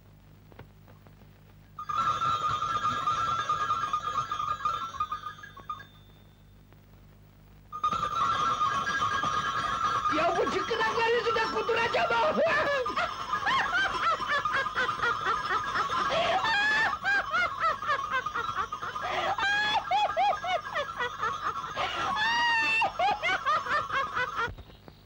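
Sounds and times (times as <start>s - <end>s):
woman laughing hard: 7.8s - 24.5s.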